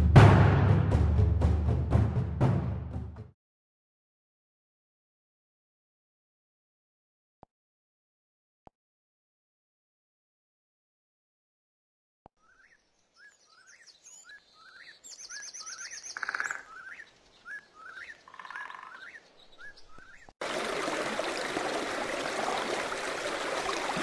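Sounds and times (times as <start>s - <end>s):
bird chirping: 12.4s - 20.3s.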